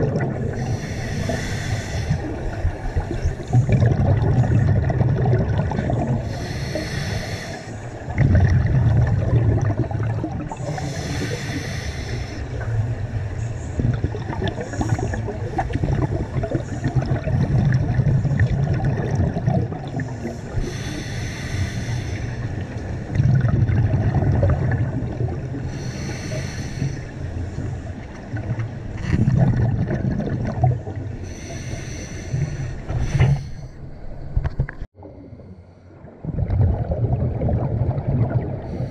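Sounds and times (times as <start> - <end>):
exhaled bubbles rumbling: 0.0 - 6.9, 7.9 - 21.1, 22.3 - 31.7, 32.3 - 38.9
regulator breath hiss: 0.5 - 3.5, 6.2 - 8.0, 10.6 - 12.6, 20.0 - 22.6, 25.7 - 27.2, 31.2 - 33.8.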